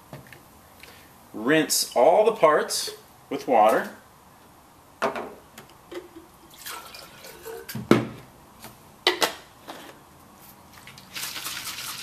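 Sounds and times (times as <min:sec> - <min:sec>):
water pouring into a bottle: 0:06.5 - 0:07.4, 0:11.0 - 0:12.0.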